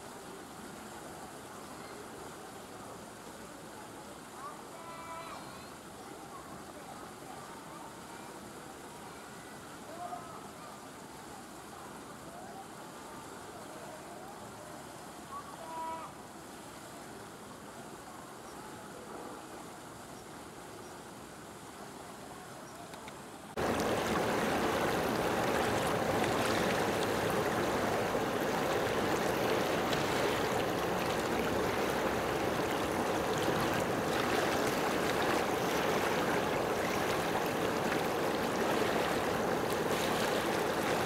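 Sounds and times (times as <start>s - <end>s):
faint background ambience: 0.0s - 41.0s
water washing against a shore: 23.6s - 41.0s.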